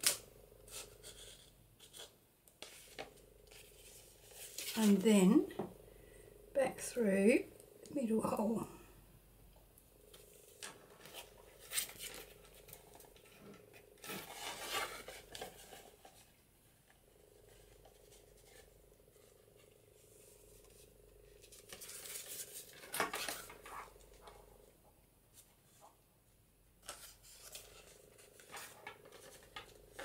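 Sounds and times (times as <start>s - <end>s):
paper rustling and scraping: 0.0s - 5.3s, 10.1s - 16.4s, 17.2s - 24.4s, 26.8s - 30.0s.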